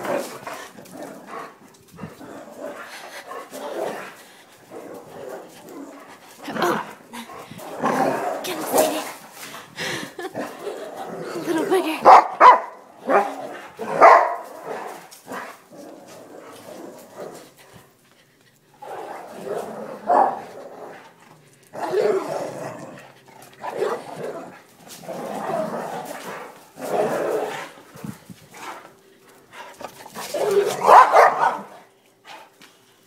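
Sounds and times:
dogs barking: 12.0 - 15.0, 30.1 - 31.8.

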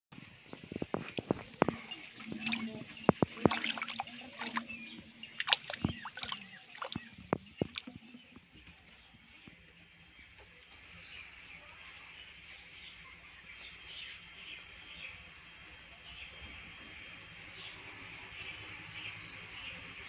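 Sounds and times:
fish slapping and splashing water: 1.0 - 8.0.

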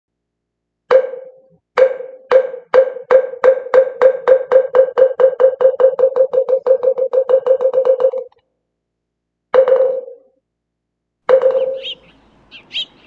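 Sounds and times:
wooden fish hollow knocks: 0.9 - 8.3.

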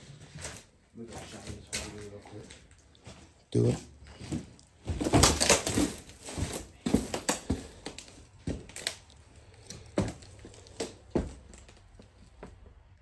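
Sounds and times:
irregular footsteps: 0.0 - 13.0
knocks and crunches: 4.1 - 12.6.

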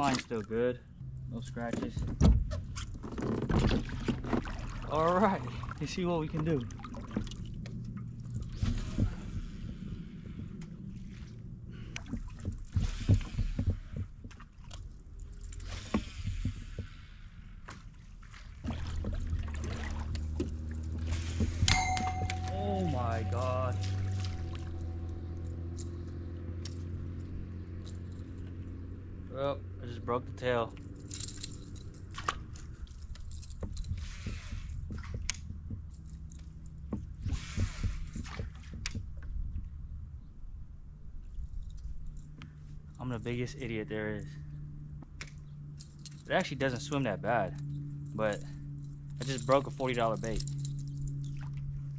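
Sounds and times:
gear clicks and rustles: 0.0 - 22.4, 23.0 - 29.2, 30.2 - 51.9
steady low hum: 4.7 - 51.9.

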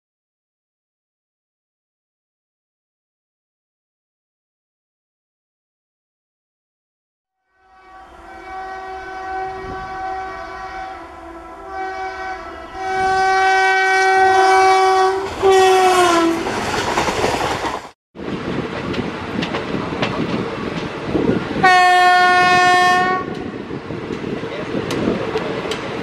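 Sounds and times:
locomotive horn blasts: 7.4 - 16.4, 21.6 - 23.4
train coaches rushing past: 7.8 - 26.0.

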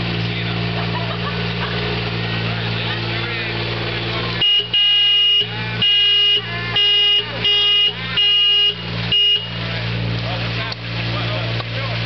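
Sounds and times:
road roller engine running: 0.0 - 12.0
vehicle horn honking: 4.3 - 9.8.

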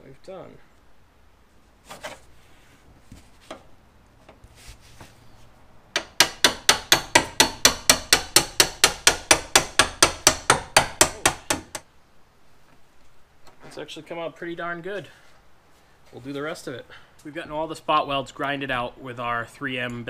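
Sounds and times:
hammer striking metal tool: 6.0 - 11.8.

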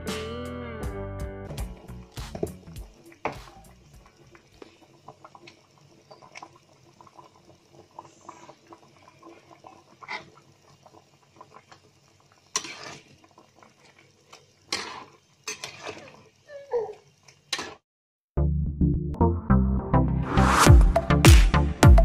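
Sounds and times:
curry bubbling in a wok: 2.9 - 17.8
metal spatula scraping a pan: 12.5 - 13.2, 14.6 - 16.3, 17.5 - 17.8.

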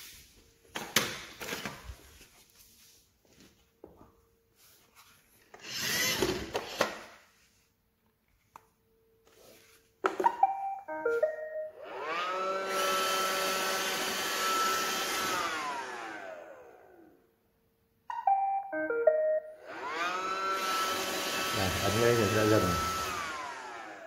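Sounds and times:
vacuum motors whining: 5.5 - 7.2, 11.8 - 17.1, 19.6 - 24.0
robot vacuum beeping tune: 10.2 - 12.6, 18.1 - 21.0.

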